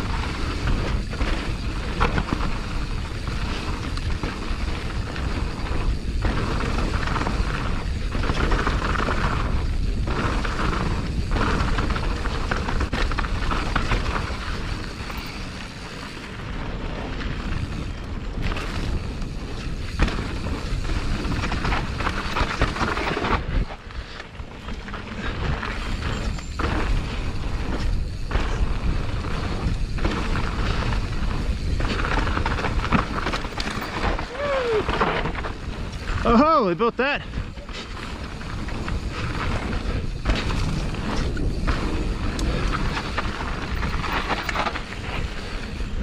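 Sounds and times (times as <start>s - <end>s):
bike tyres rolling over dirt: 0.0s - 46.0s
wind buffeting microphone: 16.4s - 36.4s, 37.0s - 46.0s.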